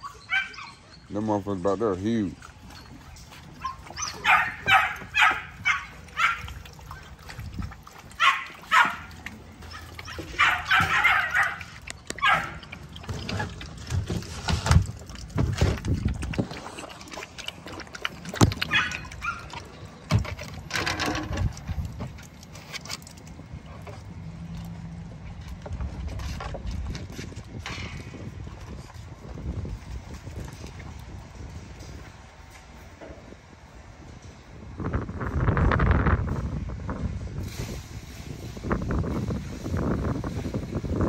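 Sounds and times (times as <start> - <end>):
puppies barking and yipping: 0.0 - 1.1, 2.4 - 14.2, 16.7 - 20.0.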